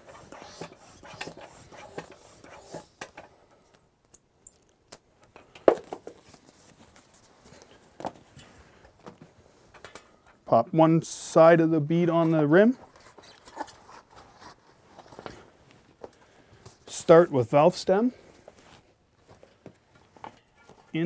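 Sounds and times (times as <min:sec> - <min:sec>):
hands rubbing bicycle tire: 0:00.0 - 0:03.2.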